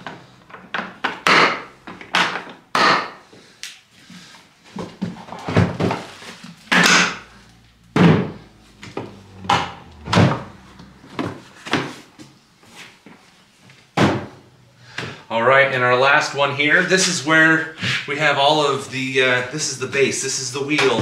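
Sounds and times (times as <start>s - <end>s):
plastic tool boxes knocking and clacking: 0.5s - 3.2s, 4.7s - 6.1s.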